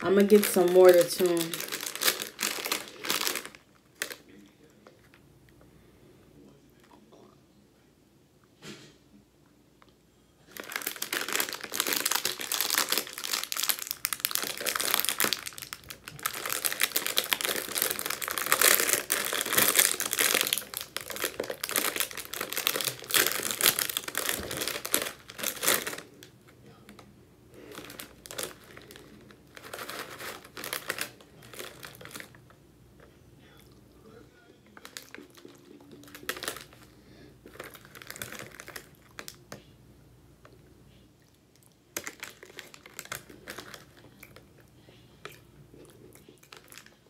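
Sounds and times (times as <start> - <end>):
plastic wrappers crinkling: 0.0 - 5.2, 10.4 - 32.6, 34.7 - 39.6, 41.9 - 45.4, 46.2 - 47.0.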